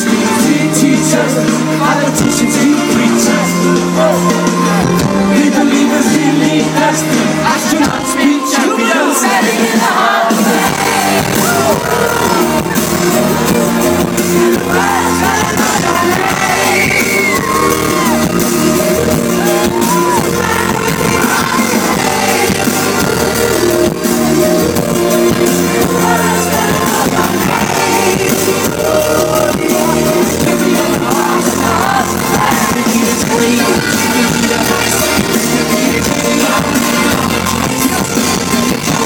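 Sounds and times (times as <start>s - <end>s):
live pop-rock band: 0.0s - 39.0s
man singing lead vocal: 0.0s - 39.0s.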